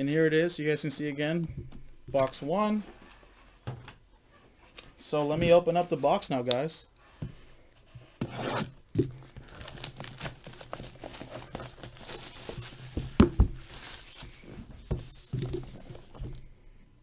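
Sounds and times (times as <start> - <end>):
shrink-wrap tearing and crinkling: 8.4 - 14.3.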